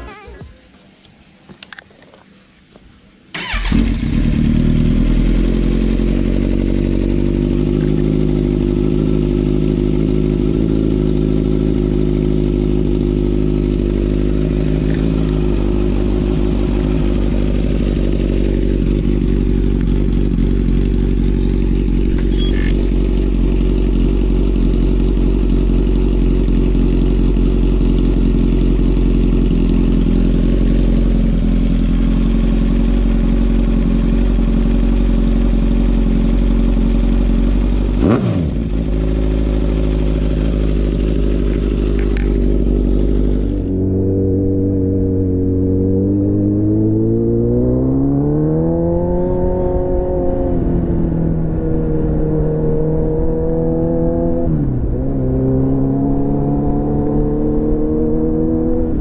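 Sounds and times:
motorcycle engine idling: 3.3s - 45.5s
brief click: 22.0s - 22.9s.

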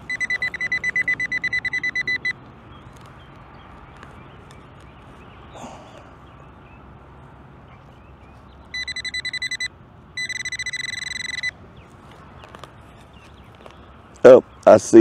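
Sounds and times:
metal detector pinpointer beeping: 0.0s - 2.4s, 8.7s - 11.6s.

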